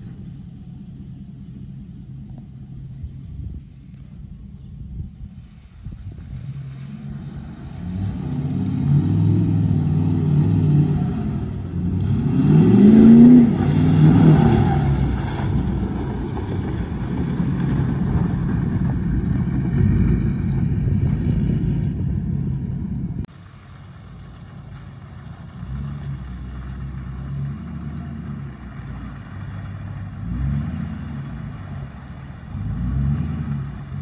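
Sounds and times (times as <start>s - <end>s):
mud and water spraying: 5.4s - 20.2s, 23.3s - 34.0s
diesel truck engine revving: 6.2s - 34.0s.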